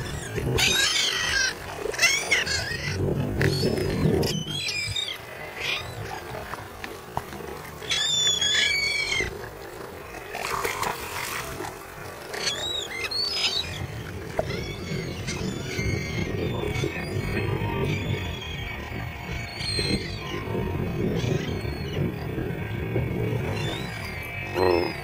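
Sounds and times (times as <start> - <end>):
rushing water: 0.0 - 16.0
seabirds calling: 0.0 - 25.0
wind: 0.0 - 25.0.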